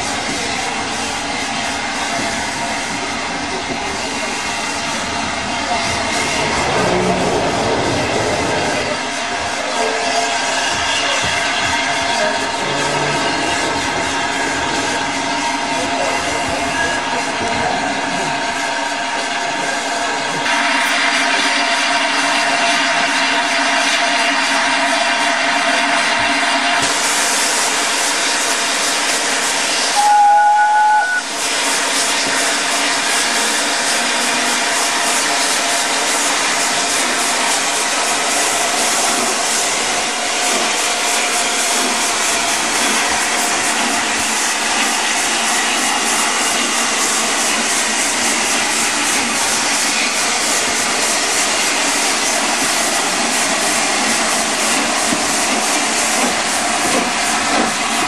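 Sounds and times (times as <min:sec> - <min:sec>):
steam locomotive exhaust and hiss: 0:00.0 - 0:58.0
train whistle blast: 0:29.9 - 0:31.4.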